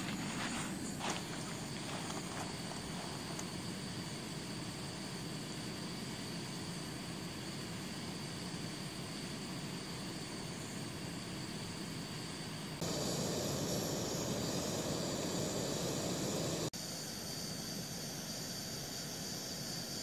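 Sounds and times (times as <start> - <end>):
camping stove hissing: 0.0 - 16.8.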